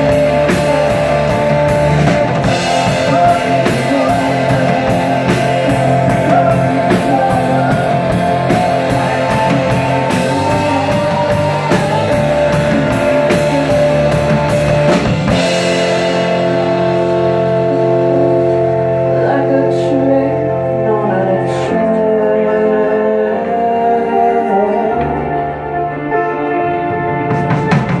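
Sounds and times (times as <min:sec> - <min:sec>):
woman singing: 0:00.0 - 0:14.2, 0:19.1 - 0:25.6
drum kit: 0:00.0 - 0:19.6, 0:26.5 - 0:28.0
electric bass: 0:00.0 - 0:28.0
keyboard chords: 0:00.0 - 0:28.0.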